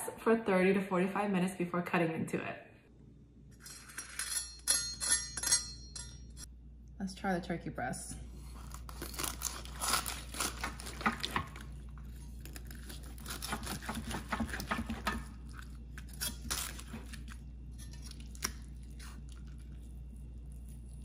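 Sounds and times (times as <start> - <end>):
knife slicing crisp turkey skin: 8.4 - 11.4, 12.1 - 19.3.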